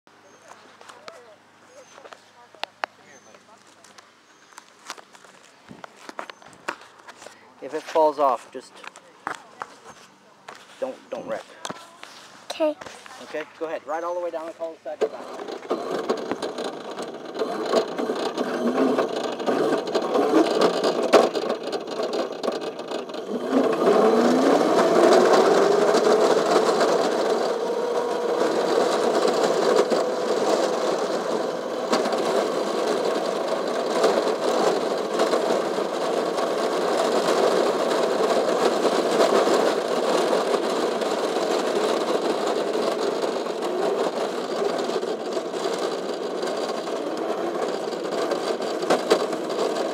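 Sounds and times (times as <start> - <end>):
go-kart motor running: 10.8 - 49.9.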